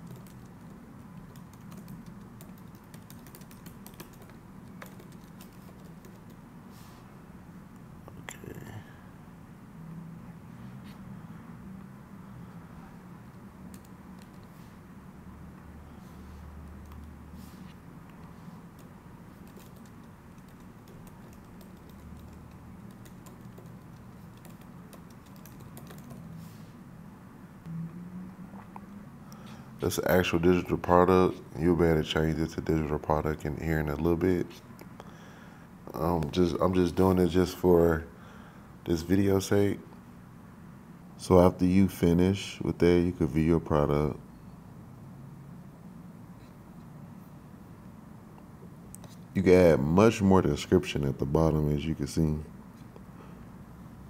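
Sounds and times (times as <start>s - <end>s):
computer keyboard typing: 0.0s - 6.4s, 13.7s - 14.5s, 16.6s - 17.2s, 18.7s - 26.3s
low steady hum: 0.0s - 54.0s.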